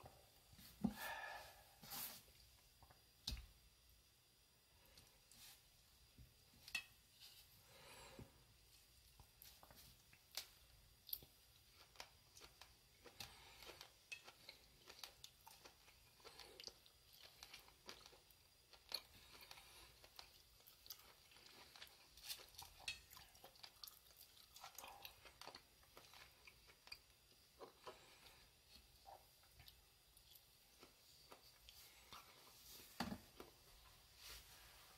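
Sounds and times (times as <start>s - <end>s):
person chewing food: 8.9s - 34.0s.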